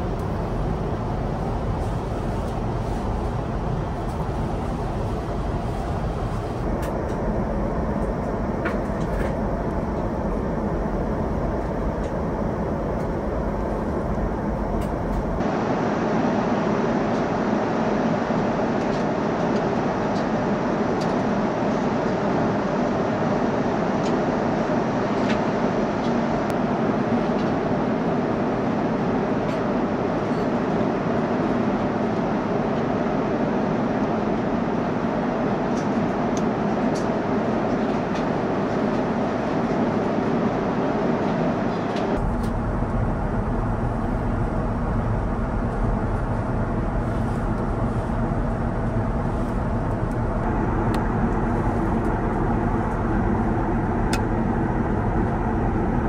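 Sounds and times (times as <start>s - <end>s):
deep engine rumble: 0.0s - 15.5s, 42.0s - 56.0s
airliner cabin air rush: 0.0s - 56.0s.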